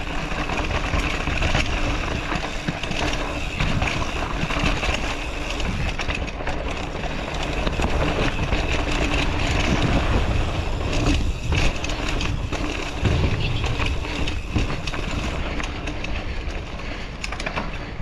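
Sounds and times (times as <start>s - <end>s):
bike rattling over bumps: 0.0s - 18.0s
tyres rolling on dirt: 0.0s - 18.0s
wind rushing over microphone: 7.6s - 16.8s.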